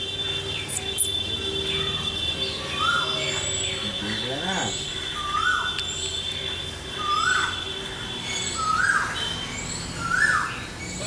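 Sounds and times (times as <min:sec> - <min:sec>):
bird calling: 0:00.0 - 0:11.0.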